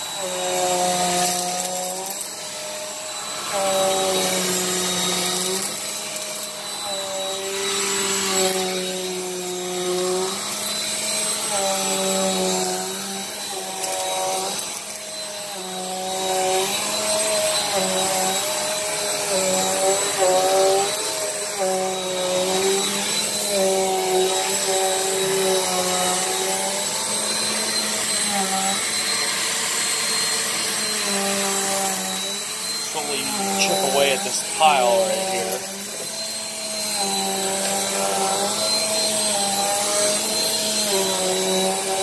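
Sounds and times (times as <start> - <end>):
vacuum cleaner on carpet: 0.0 - 42.0
steady high whine: 32.2 - 38.3.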